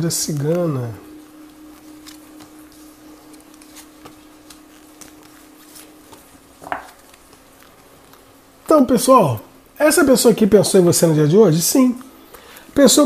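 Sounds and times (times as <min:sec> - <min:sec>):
faint steady hum: 0:00.0 - 0:13.0
cards dealt onto cloth table: 0:01.4 - 0:08.2.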